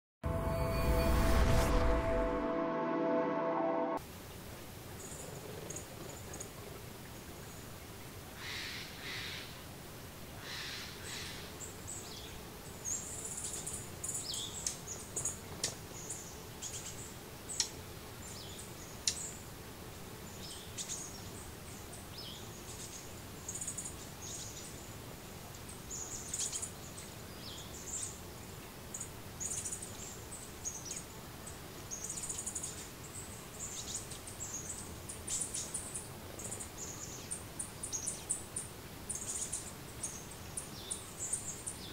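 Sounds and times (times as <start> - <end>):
low background hiss: 4.0 - 41.9
small birds chirping: 10.5 - 19.4, 28.9 - 41.9.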